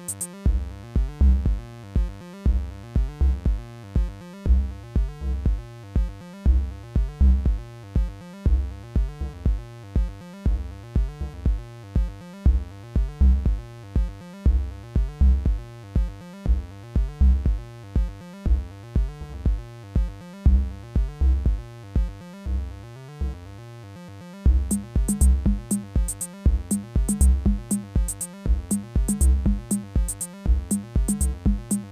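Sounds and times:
techno synthesizer groove: 0.0 - 0.4, 24.5 - 31.9.

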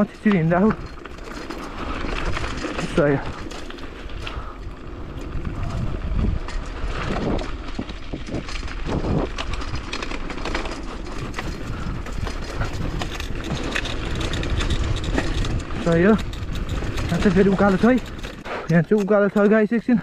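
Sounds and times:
bicycle rattling on rough track: 0.0 - 20.0
wind on microphone: 4.2 - 10.1, 11.1 - 18.7.

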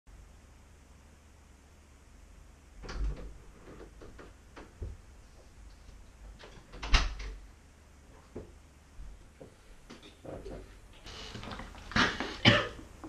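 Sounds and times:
knocks and clatters in a room: 2.8 - 7.5, 8.1 - 13.0.

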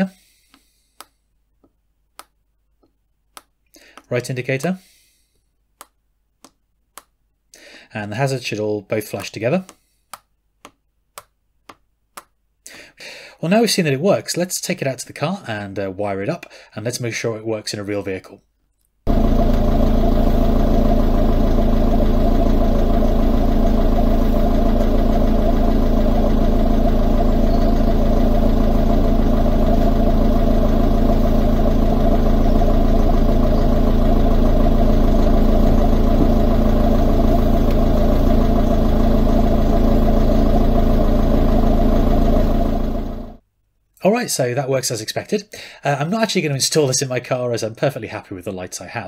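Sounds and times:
car engine idling: 19.1 - 43.4.

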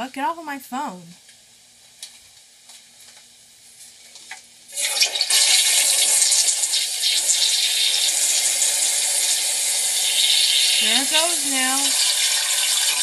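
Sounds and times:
toilet flushing water rush: 4.8 - 13.0.

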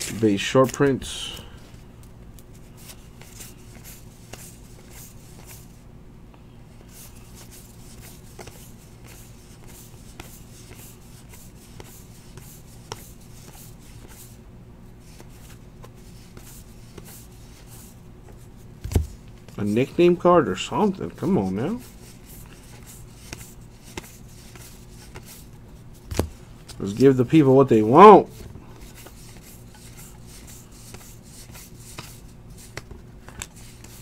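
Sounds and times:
trading cards rustling: 0.0 - 1.8
low steady hum: 0.0 - 34.0.

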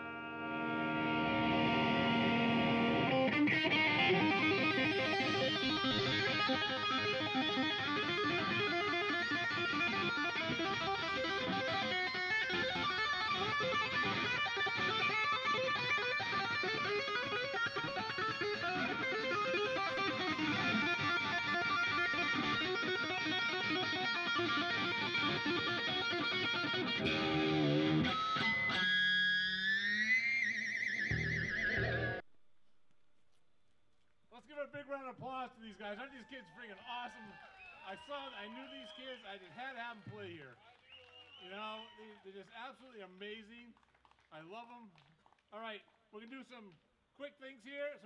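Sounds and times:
electric guitar lead playing: 0.0 - 32.2.

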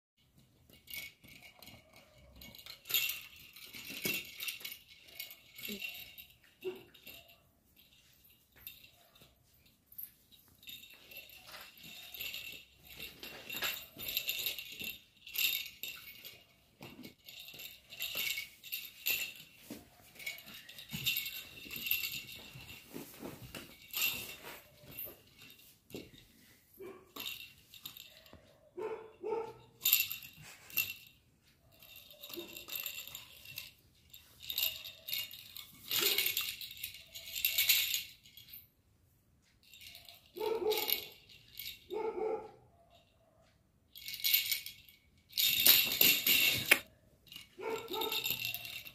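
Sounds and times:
plastic rattle toy rattling: 0.6 - 9.2, 10.6 - 22.8, 29.8 - 38.5, 39.6 - 41.8, 43.9 - 48.9
puppy barks: 26.8 - 27.2, 28.6 - 29.8, 40.4 - 41.1, 41.9 - 43.4, 47.6 - 48.2.

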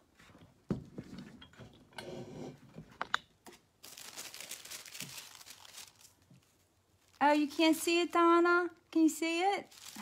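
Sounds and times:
paper rustling and crinkling: 3.8 - 7.6, 9.6 - 10.0.

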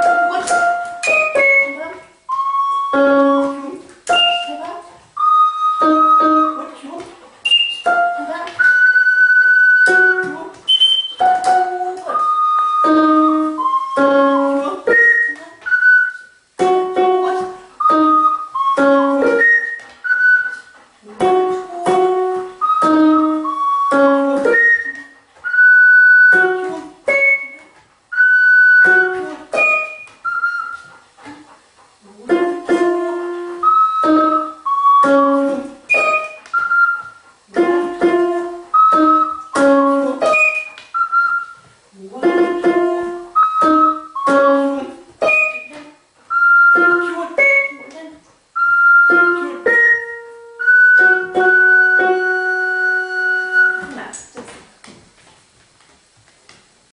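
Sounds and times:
floor keyboard notes: 0.0 - 56.9
small wind instrument held notes: 5.2 - 6.6, 7.5 - 31.0, 32.7 - 41.7, 42.6 - 47.8, 48.6 - 53.9.

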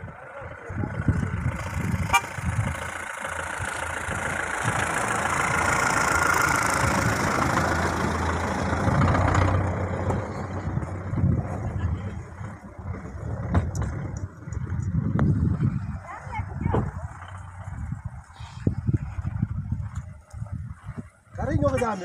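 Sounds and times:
vehicle driving past: 0.9 - 14.3.

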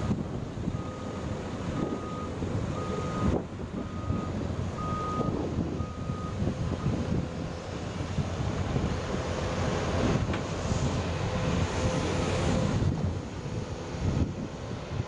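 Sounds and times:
reversing alarm beeping: 1.8 - 6.4.

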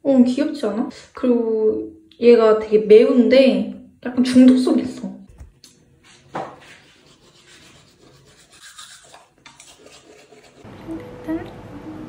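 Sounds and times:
toothbrush scrubbing teeth: 6.7 - 11.1.

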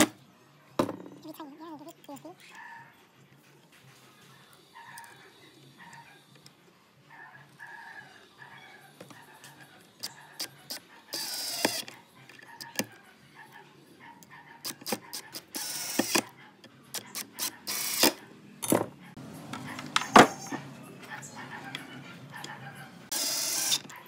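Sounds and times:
cordless drill motor whirring: 10.4 - 11.9, 15.4 - 16.2, 17.1 - 18.2, 23.1 - 24.0.

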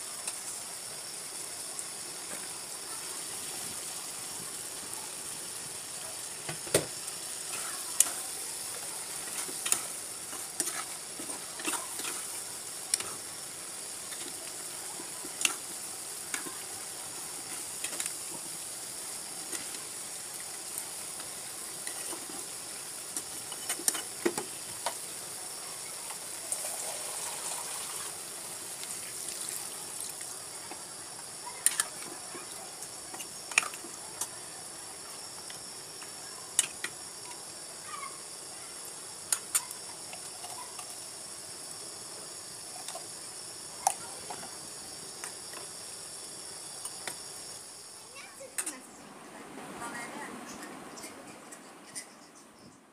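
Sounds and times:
curry sizzling in a wok: 0.0 - 48.7
metal spatula scraping a pan: 9.1 - 13.2.

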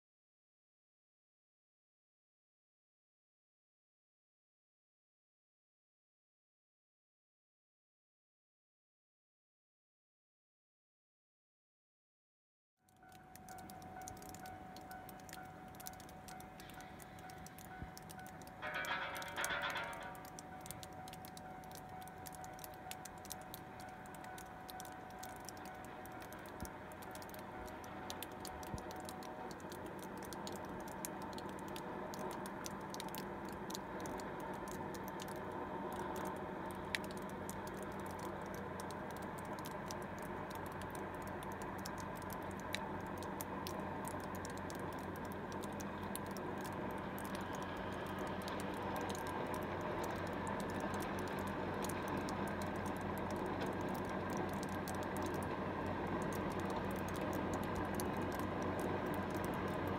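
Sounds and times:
fine crackle of tiny clicks: 12.9 - 59.9
rotary snowplow machinery drone: 12.9 - 59.9.

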